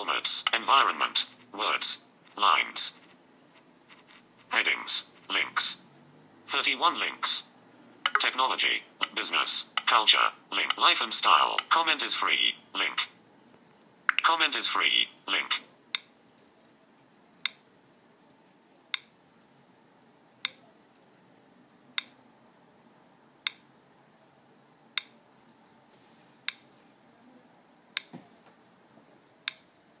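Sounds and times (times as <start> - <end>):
short repeating clicks: 8.0 - 8.4, 9.0 - 10.0, 14.1 - 14.3.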